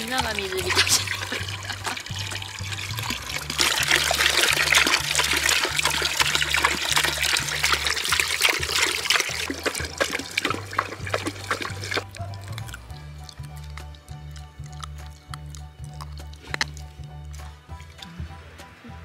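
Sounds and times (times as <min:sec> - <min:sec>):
hose water splashing into bucket: 0:00.0 - 0:14.1.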